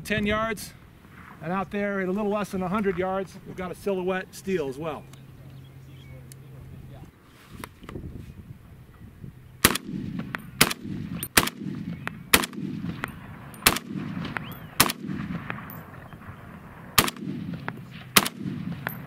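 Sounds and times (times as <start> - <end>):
rifle shots with echo: 9.6 - 19.0.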